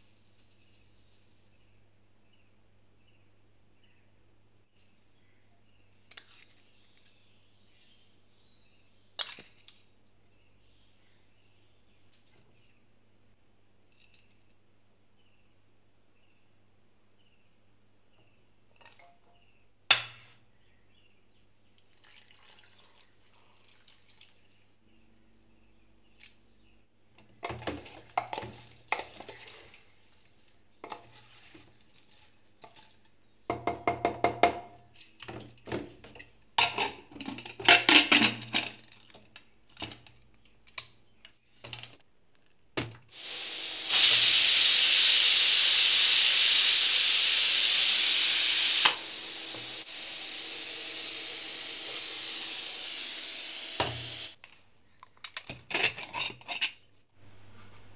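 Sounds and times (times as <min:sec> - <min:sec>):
pressure cooker venting steam: 0:43.1 - 0:54.4.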